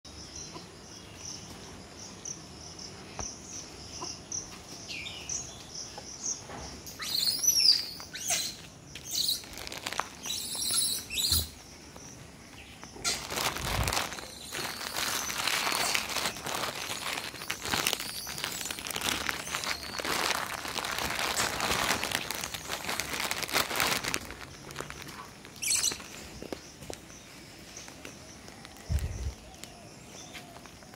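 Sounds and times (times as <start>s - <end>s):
bird chirps: 0.1s - 9.5s, 10.2s - 13.3s, 14.0s - 20.8s, 24.5s - 30.9s
footsteps on brick path: 13.2s - 30.9s.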